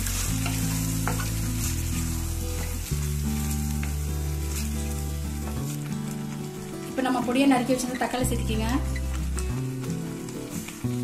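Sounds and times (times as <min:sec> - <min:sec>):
wooden spatula stirring and scraping: 0:00.0 - 0:06.4
background music of low notes: 0:00.0 - 0:11.0
meat sizzling in a pot: 0:00.0 - 0:11.0.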